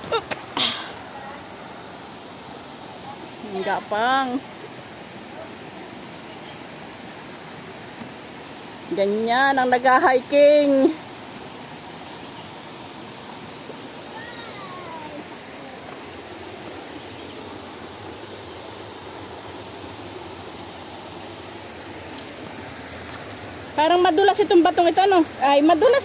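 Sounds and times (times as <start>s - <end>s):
stream water flowing: 0.0s - 26.0s.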